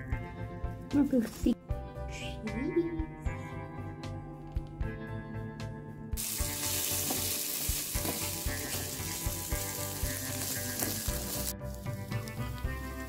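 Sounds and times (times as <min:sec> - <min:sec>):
meat sizzling in a pan: 0:06.2 - 0:13.0
spatula stirring in a pan: 0:06.3 - 0:13.0.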